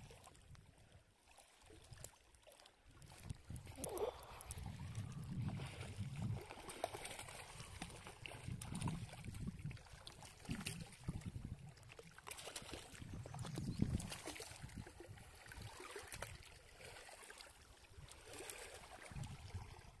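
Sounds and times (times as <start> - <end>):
fish splashing in water: 3.0 - 11.3, 11.9 - 17.6.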